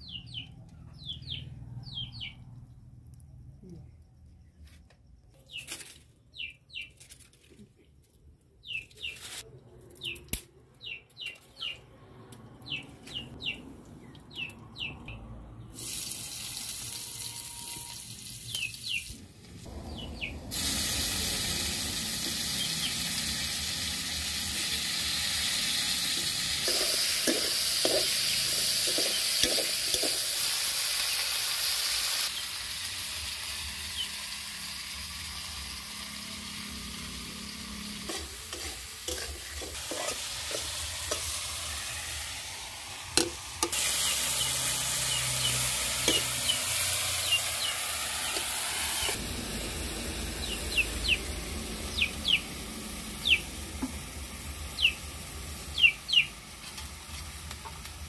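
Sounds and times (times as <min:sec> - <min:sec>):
small birds chirping: 0:00.0 - 0:15.3, 0:18.5 - 0:20.4, 0:44.0 - 0:49.2, 0:50.3 - 0:52.5, 0:53.2 - 0:53.5, 0:54.7 - 0:55.0, 0:55.7 - 0:56.4
tomatoes sizzling in hot oil: 0:15.8 - 0:58.0.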